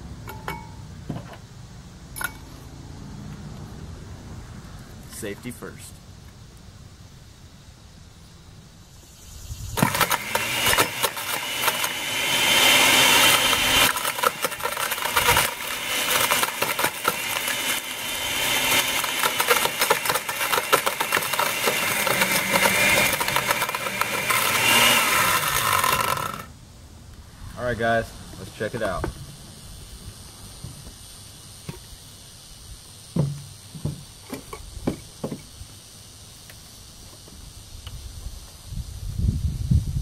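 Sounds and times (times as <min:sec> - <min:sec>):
blender motor running: 0:09.8 - 0:26.5.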